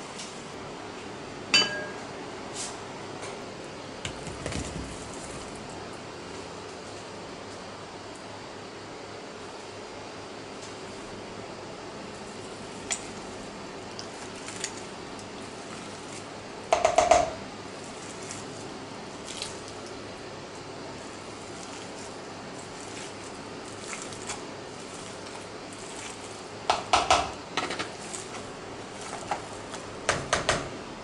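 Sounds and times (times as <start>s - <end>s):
masher mashing potatoes: 12.1s - 30.7s
masher clacking on bowl: 16.7s - 17.4s, 26.7s - 27.9s.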